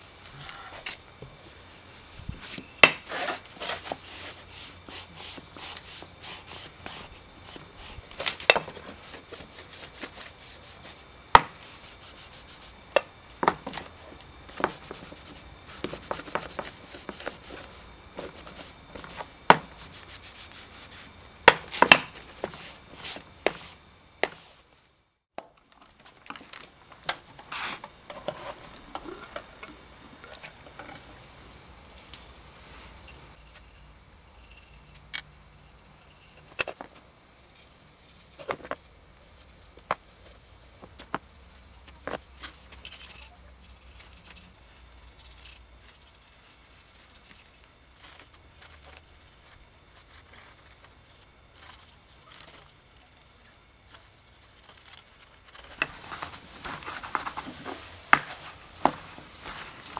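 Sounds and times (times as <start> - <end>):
cloth rubbing on wood: 1.8 - 24.8, 27.4 - 28.9, 55.6 - 59.9.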